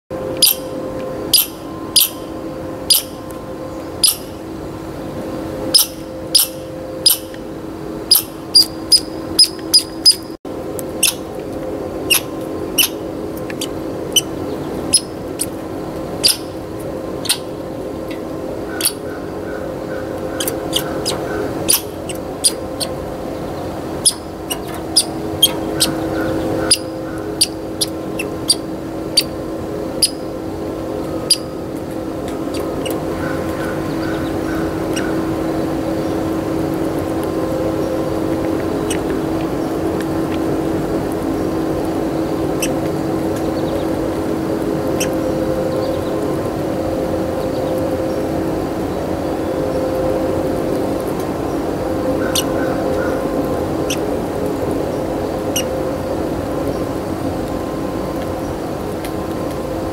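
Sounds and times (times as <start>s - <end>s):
steady low hum: 0.1s - 59.9s
squirrel squeaking: 0.4s - 0.7s, 1.3s - 3.2s, 4.0s - 4.4s, 5.7s - 7.4s, 8.1s - 10.4s, 11.0s - 11.3s, 12.1s - 15.6s, 16.2s - 16.6s, 17.2s - 23.0s, 23.9s - 29.4s, 30.0s - 30.3s, 31.2s - 31.6s, 32.3s - 35.2s, 38.8s - 39.2s, 42.5s - 42.9s, 44.9s - 45.2s, 52.2s - 53.2s, 53.8s - 54.1s, 55.5s - 55.7s.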